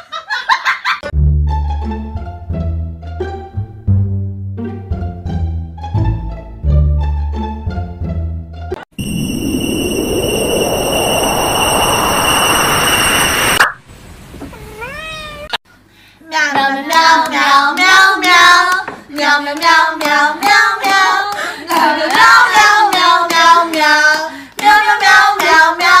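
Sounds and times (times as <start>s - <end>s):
faint warbling tones: 9.0s - 13.8s
steady noise: 9.0s - 14.2s.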